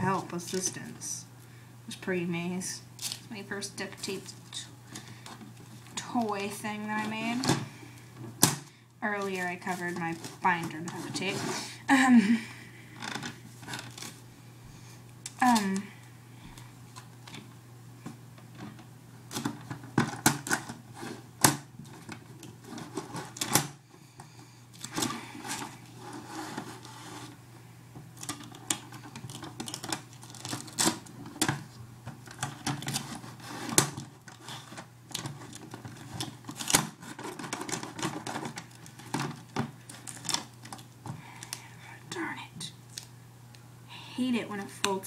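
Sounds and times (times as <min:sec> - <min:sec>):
steady low hum: 0:00.0 - 0:45.0
duct tape crackling and peeling: 0:03.0 - 0:03.4, 0:13.0 - 0:14.2, 0:28.1 - 0:41.6.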